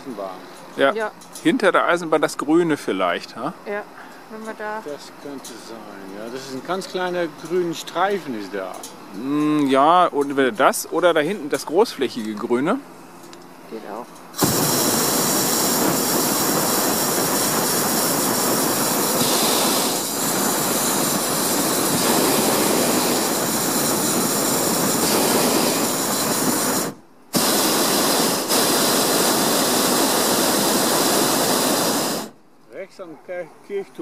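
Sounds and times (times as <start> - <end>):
propane burner blast: 13.8 - 32.4.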